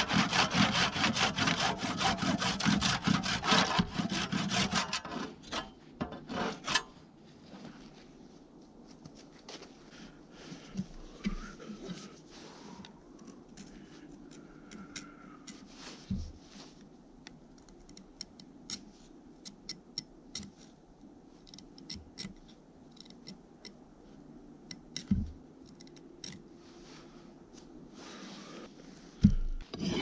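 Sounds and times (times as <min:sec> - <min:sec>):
file scraping steel: 0:00.0 - 0:07.0, 0:29.7 - 0:30.0
dull thumps: 0:29.2 - 0:29.6.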